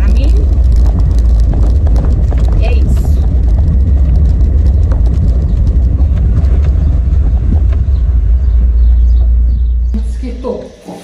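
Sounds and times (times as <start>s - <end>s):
car interior engine and road rumble: 0.0s - 10.0s.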